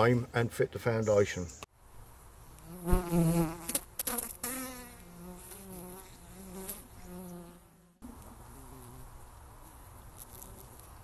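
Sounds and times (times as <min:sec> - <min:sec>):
bees buzzing: 0:02.6 - 0:09.3.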